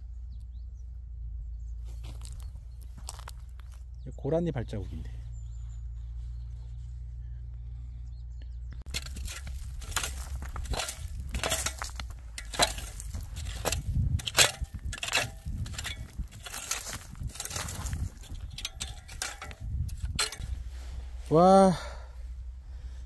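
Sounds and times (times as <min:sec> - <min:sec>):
low rumble: 0:00.0 - 0:21.4
rake dragged through stony soil: 0:01.8 - 0:03.8, 0:08.9 - 0:21.5.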